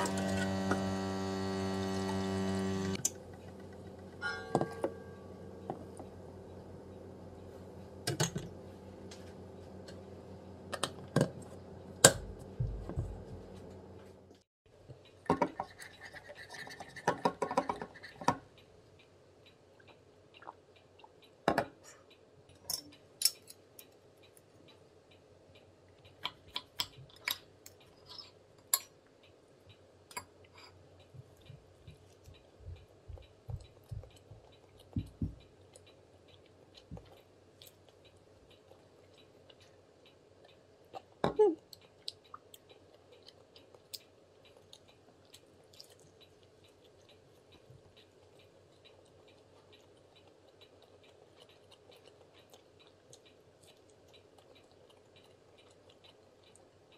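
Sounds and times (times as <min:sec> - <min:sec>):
low hum: 0:00.0 - 0:14.4.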